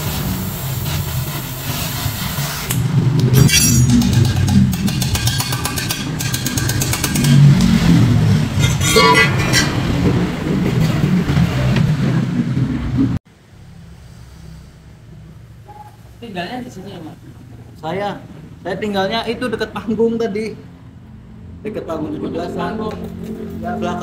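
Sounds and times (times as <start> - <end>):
electric welding crackle: 0.0 - 3.4.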